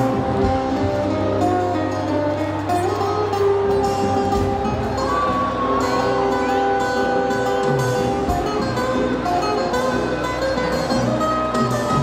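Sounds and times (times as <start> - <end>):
drums: 0.0 - 12.0
electric bass: 0.0 - 12.0
electric guitar: 0.0 - 12.0
live band music: 0.0 - 12.0.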